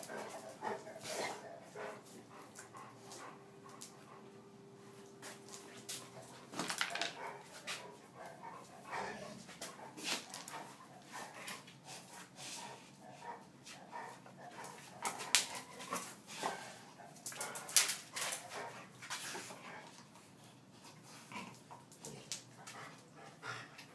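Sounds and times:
dog scuffling on tiled floor: 5.0 - 12.8, 13.6 - 23.1.

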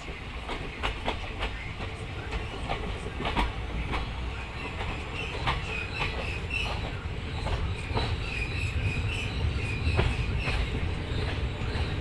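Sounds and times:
train low rumble: 0.0 - 12.0
wheels clacking over rail joints: 0.0 - 12.0.

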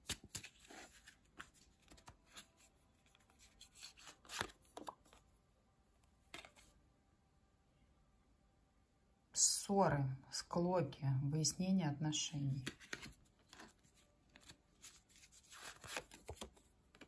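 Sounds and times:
cards rustling and flicking: 0.0 - 5.3, 6.3 - 6.7, 12.6 - 17.0.

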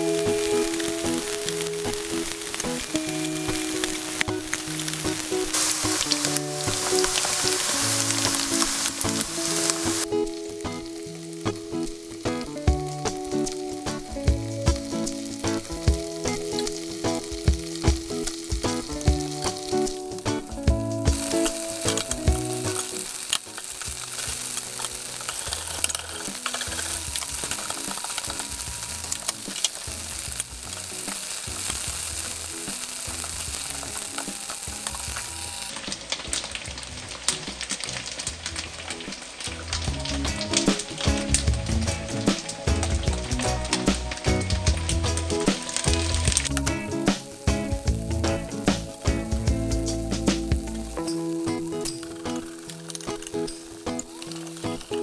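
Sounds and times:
quiet background music: 0.0 - 55.0
tofu sizzling in oil: 0.0 - 55.0
utensil clicking against pan: 21.1 - 31.8.

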